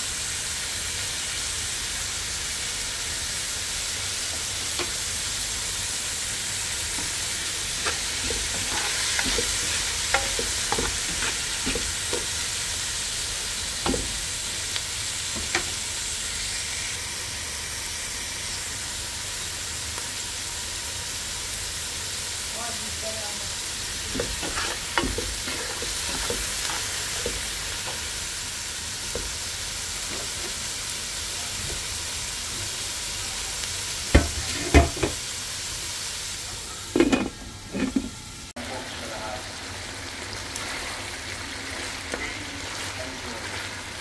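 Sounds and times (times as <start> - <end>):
food sizzling in a pan: 0.0 - 44.0
utensil scraping a pan: 7.0 - 12.4, 24.0 - 28.1, 37.0 - 38.2.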